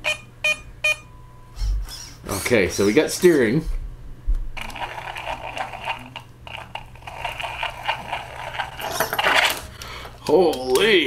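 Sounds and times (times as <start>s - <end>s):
electric motor driving whirring gears: 1.6s - 2.6s.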